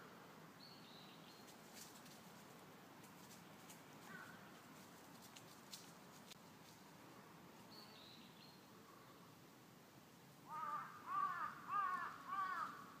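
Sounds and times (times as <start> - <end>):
crow cawing: 10.5 - 13.0.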